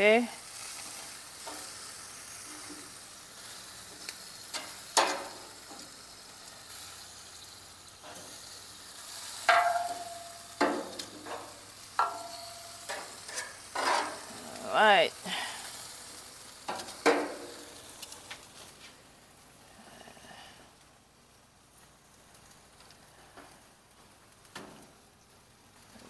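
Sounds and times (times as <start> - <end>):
chicken wings sizzling on grill: 0.0 - 26.0
metal knocking on grill grate: 4.5 - 5.9, 9.3 - 14.3, 16.7 - 17.8, 24.5 - 24.9.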